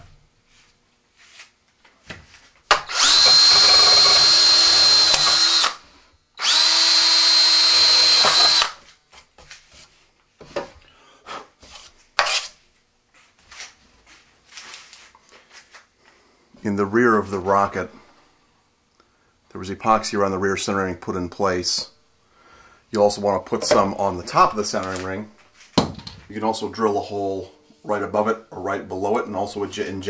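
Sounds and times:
cordless drill whining: 2.7 - 8.8.

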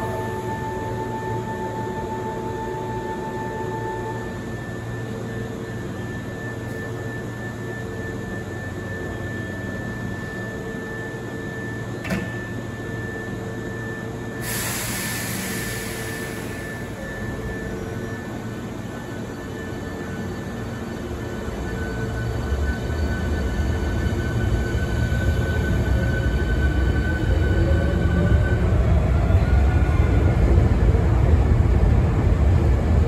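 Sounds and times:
train equipment hum and whir: 0.0 - 33.0
air hiss of doors closing: 14.4 - 16.6.

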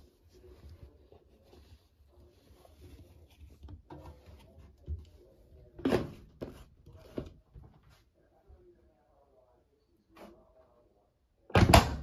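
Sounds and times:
washing machine knocks and clunks: 11.5 - 12.0.

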